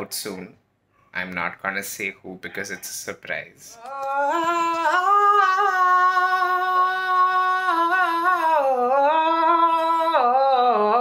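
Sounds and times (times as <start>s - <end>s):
man singing slow vocal line: 3.7s - 11.0s.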